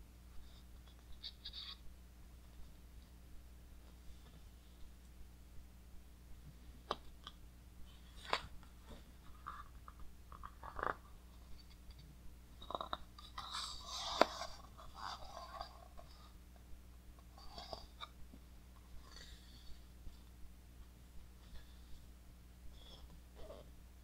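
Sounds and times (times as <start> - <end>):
page turning rustle: 8.1 - 11.0.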